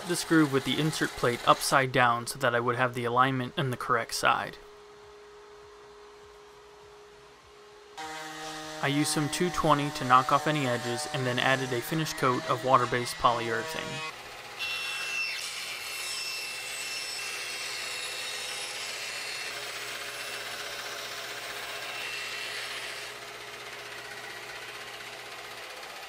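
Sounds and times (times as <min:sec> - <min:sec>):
bandsaw cutting through board: 0:00.0 - 0:02.1, 0:08.0 - 0:26.0.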